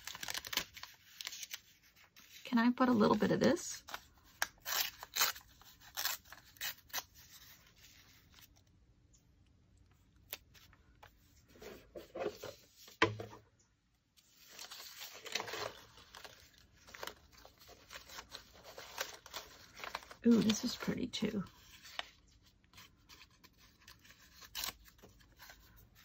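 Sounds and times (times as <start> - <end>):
paper rustling: 0.0 - 3.2, 14.2 - 26.0
paper tearing: 4.5 - 7.9, 23.5 - 25.2.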